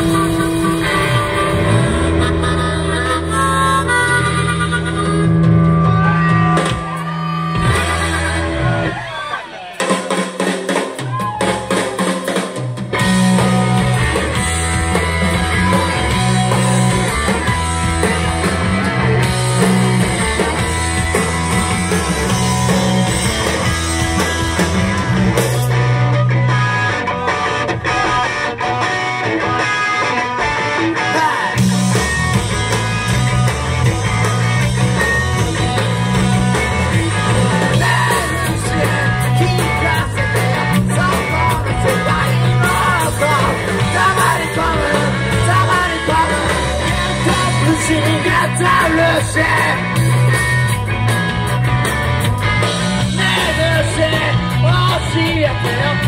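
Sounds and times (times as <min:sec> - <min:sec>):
rock band playing: 0:00.0 - 0:56.0
person singing: 0:31.0 - 0:31.8, 0:37.3 - 0:50.0, 0:53.0 - 0:56.0.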